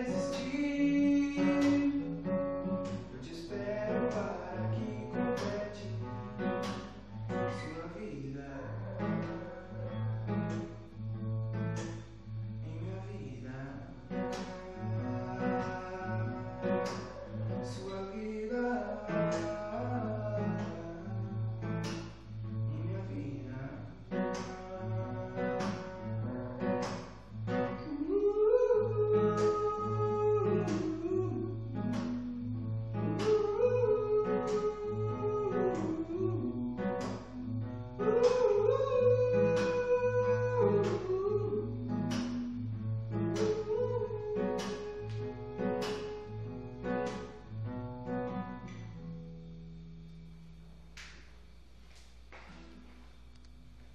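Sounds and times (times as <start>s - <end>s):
man singing: 0.0s - 2.4s, 3.0s - 6.4s, 7.4s - 9.9s, 12.6s - 21.4s, 22.6s - 26.8s, 27.7s - 46.3s
acoustic guitar strumming: 0.0s - 53.9s.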